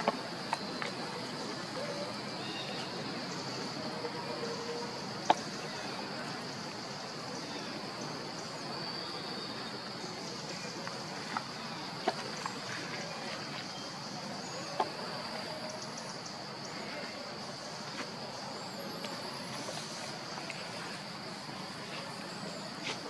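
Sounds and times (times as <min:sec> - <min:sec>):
outdoor background hiss: 0:00.0 - 0:23.0.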